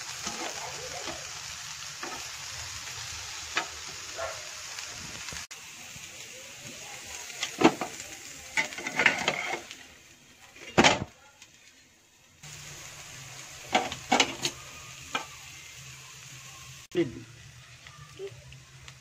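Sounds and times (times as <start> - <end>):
dough frying hiss: 0.0 - 19.0.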